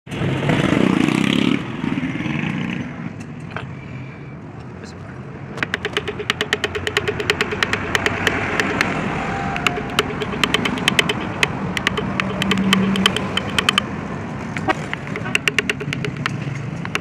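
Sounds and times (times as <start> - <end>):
chisel tapping into wood: 5.6 - 9.0, 9.6 - 13.8, 14.6 - 17.0.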